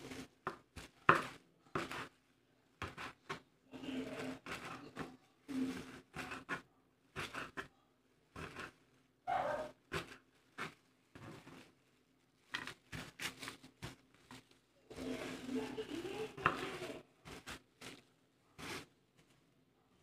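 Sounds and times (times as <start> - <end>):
plastic gloves rustling: 0.0 - 20.0
muffled voice: 14.9 - 17.1.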